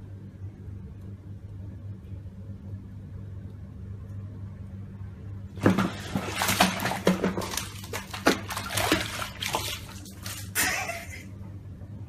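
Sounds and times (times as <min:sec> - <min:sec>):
steady low hum: 0:00.0 - 0:12.0
bathwater splashing: 0:05.6 - 0:11.2.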